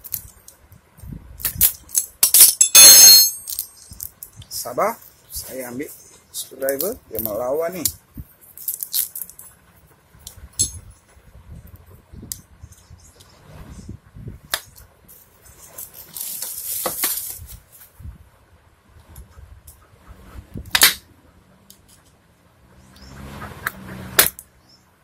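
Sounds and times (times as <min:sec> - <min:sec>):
screwdriver clinking on metal chain: 0:02.3 - 0:04.0.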